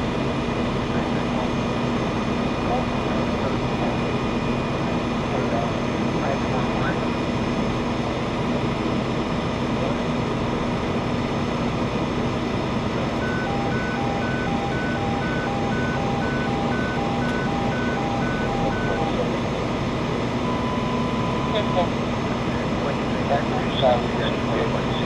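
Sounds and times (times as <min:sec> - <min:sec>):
truck engine idling: 0:00.0 - 0:25.0
two-tone warning beeper: 0:13.1 - 0:19.5, 0:20.4 - 0:22.0.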